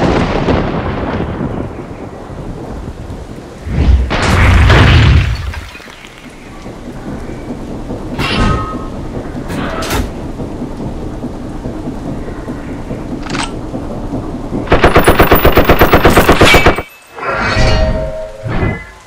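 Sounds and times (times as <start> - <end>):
rapid machine-gun fire: 14.6 - 16.9.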